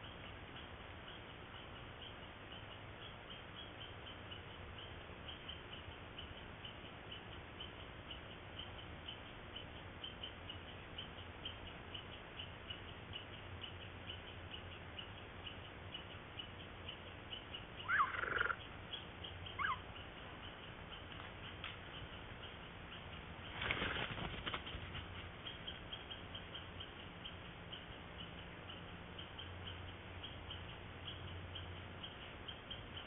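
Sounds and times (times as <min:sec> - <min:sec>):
faint steady hiss: 0:00.0 - 0:33.0
light regular ticking: 0:00.0 - 0:33.0
mountain lion chirping calls: 0:08.6 - 0:23.0.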